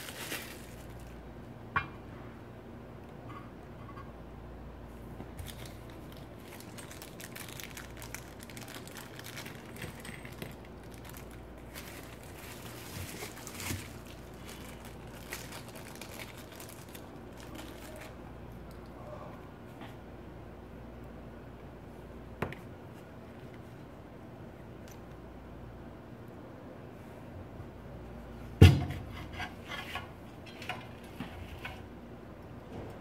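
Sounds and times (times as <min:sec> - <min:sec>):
plastic bags and bubble wrap crinkling: 0:00.0 - 0:01.2, 0:05.3 - 0:18.3.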